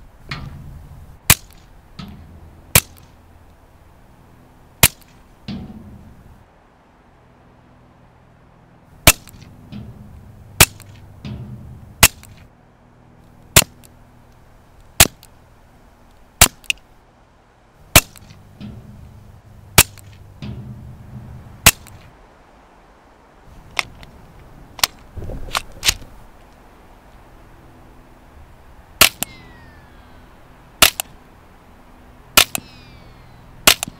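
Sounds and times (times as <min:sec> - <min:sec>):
suppressed pistol shots: 0:09.0 - 0:09.5, 0:10.6 - 0:12.4, 0:17.9 - 0:19.0, 0:19.7 - 0:20.8, 0:29.0 - 0:29.9, 0:30.8 - 0:31.2, 0:32.4 - 0:33.9.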